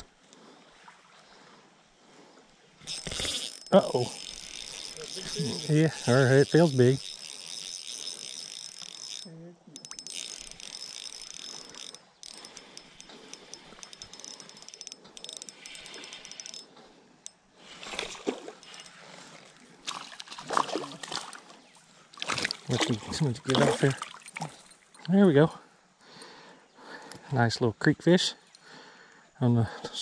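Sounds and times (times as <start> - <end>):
fishing reel gears whirring: 2.8 - 19.6.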